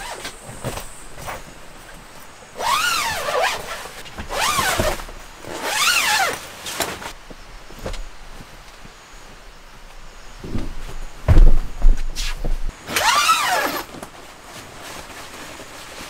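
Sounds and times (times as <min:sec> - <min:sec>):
fabric flaps rustling: 0:00.0 - 0:08.7, 0:10.4 - 0:16.0
zipper being pulled: 0:02.6 - 0:07.1, 0:12.9 - 0:13.9.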